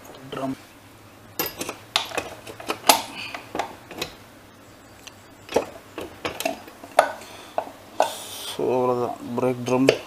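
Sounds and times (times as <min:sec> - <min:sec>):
metal clinks and knocks: 0:01.4 - 0:04.2.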